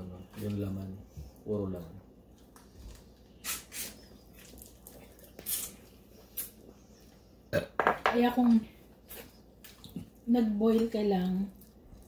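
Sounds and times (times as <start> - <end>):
person slurping and sucking: 5.3 - 6.6.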